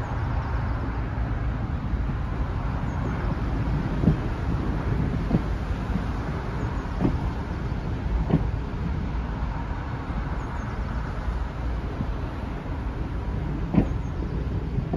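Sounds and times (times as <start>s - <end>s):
train wheel clunks: 8.2s - 8.5s, 13.7s - 14.0s.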